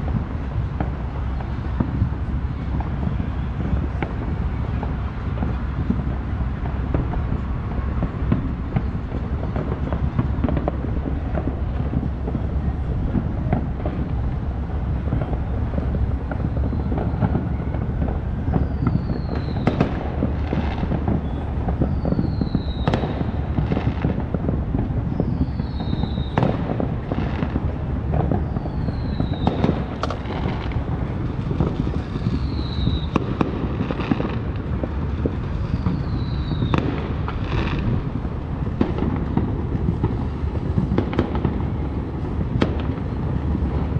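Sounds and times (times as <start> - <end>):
distant fireworks banging: 0.0 - 43.9
low rumble: 34.6 - 43.9.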